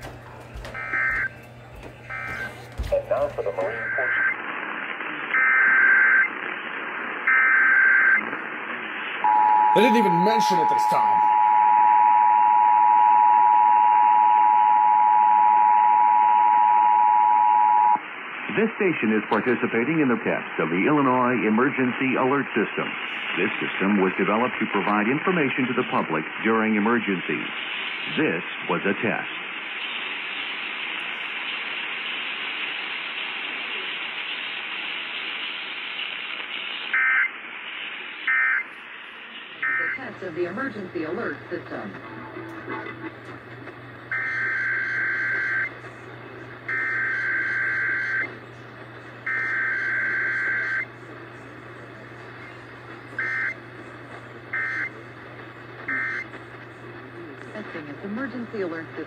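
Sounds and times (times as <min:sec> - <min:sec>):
radio static hiss: 0:00.0 - 0:11.4, 0:17.8 - 0:59.0
emergency alert data tones: 0:00.6 - 0:01.4, 0:02.1 - 0:04.4, 0:09.2 - 0:18.0, 0:44.1 - 0:45.8, 0:46.7 - 0:48.4, 0:49.2 - 0:50.9, 0:53.2 - 0:53.6, 0:54.5 - 0:55.0, 0:55.9 - 0:56.3.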